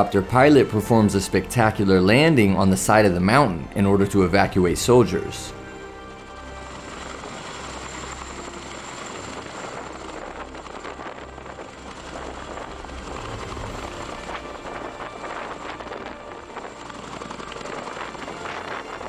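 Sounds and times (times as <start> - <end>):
helicopter rotor and engine noise: 0.0 - 19.0
rotor downwash rushing: 5.5 - 19.0.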